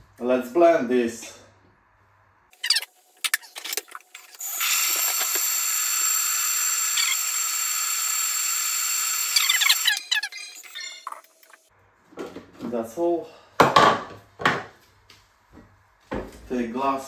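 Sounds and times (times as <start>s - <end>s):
blender motor whining: 4.4s - 10.2s.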